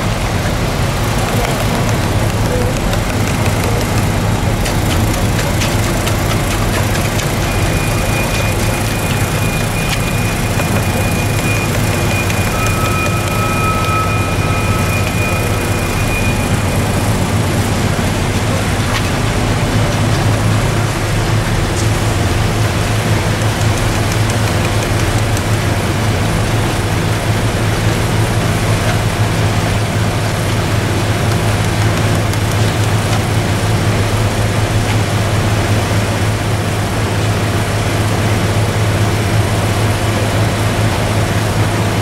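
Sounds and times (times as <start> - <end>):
heavy machinery engine drone: 0.0 - 42.0
faint high whine: 7.4 - 19.3.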